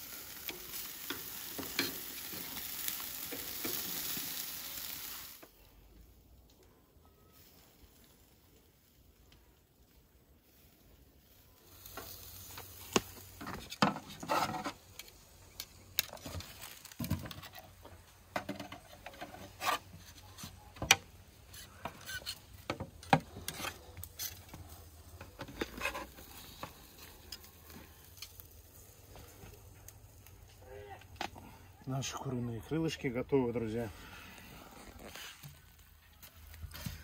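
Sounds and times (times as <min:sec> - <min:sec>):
metal skewers clinking: 0:00.5 - 0:02.4
knife scraping metal skewers: 0:01.0 - 0:02.5, 0:13.4 - 0:15.0, 0:18.5 - 0:22.6, 0:23.3 - 0:24.5, 0:25.4 - 0:26.7.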